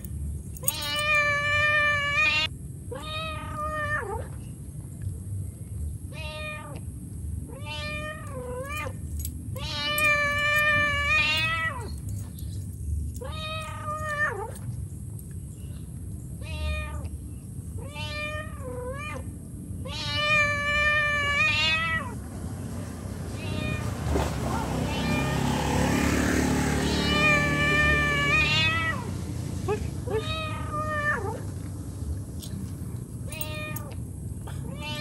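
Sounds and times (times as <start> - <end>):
cat meowing: 0.6 - 4.3, 6.1 - 6.8, 7.5 - 9.0, 9.6 - 11.9, 13.2 - 14.6, 16.4 - 17.1, 17.8 - 22.2, 23.4 - 23.9, 24.5 - 25.7, 26.8 - 29.1, 30.0 - 31.5, 33.3 - 34.0, 34.6 - 35.0.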